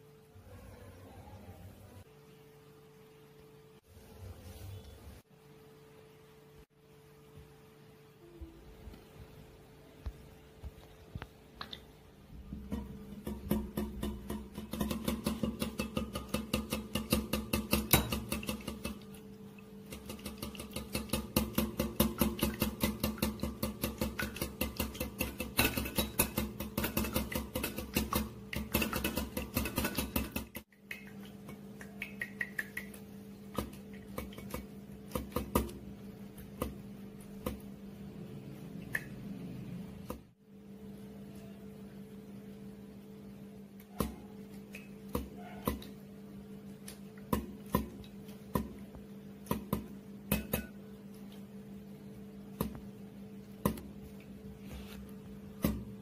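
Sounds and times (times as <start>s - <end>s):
whisk clicking against glass bowl: 12.7s - 19.2s, 19.8s - 33.0s.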